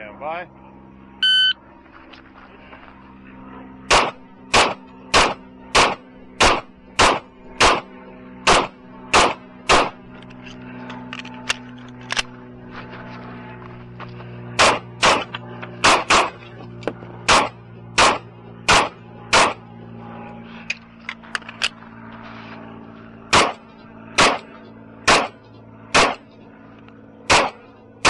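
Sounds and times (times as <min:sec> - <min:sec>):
pistol gunshots: 0:03.8 - 0:10.0, 0:14.6 - 0:16.4, 0:17.2 - 0:19.6, 0:23.3 - 0:23.6, 0:24.2 - 0:26.2, 0:27.3 - 0:27.7.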